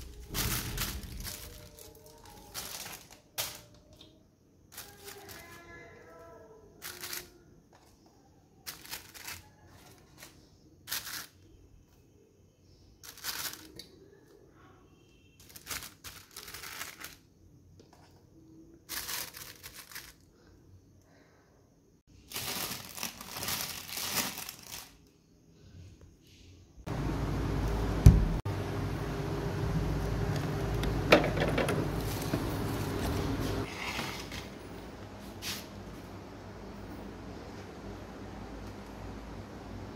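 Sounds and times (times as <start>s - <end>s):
plastic sheet crinkling: 0.0s - 4.0s, 4.7s - 6.0s, 6.8s - 7.8s, 8.6s - 11.5s, 13.0s - 13.9s, 15.4s - 17.3s, 18.8s - 20.4s, 22.1s - 25.1s.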